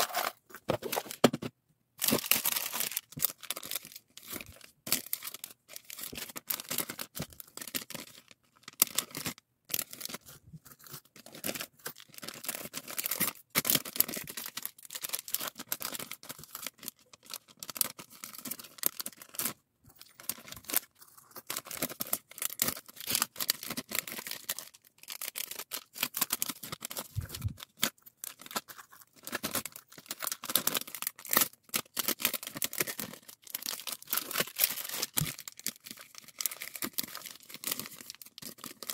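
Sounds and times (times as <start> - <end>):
plastic bags crinkling: 20.0 - 38.9.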